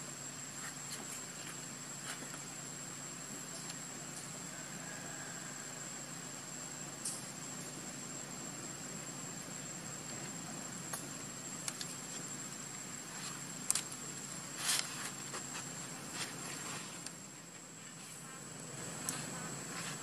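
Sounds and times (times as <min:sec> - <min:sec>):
faint outdoor hiss: 0:00.0 - 0:20.0
high-pitched insect drone: 0:00.0 - 0:20.0
dry crackles: 0:10.0 - 0:20.0.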